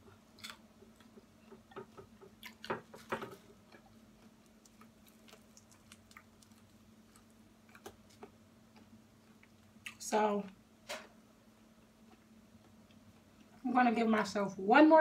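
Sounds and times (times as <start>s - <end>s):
faint steady hum: 0.0s - 15.0s
chewing fried chicken: 2.2s - 10.0s.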